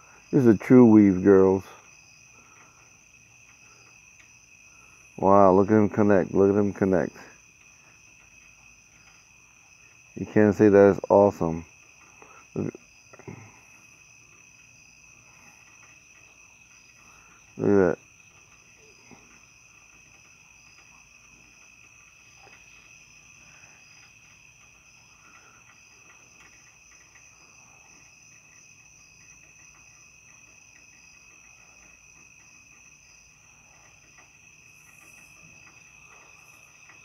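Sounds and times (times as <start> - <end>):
crickets trilling: 0.0 - 37.0.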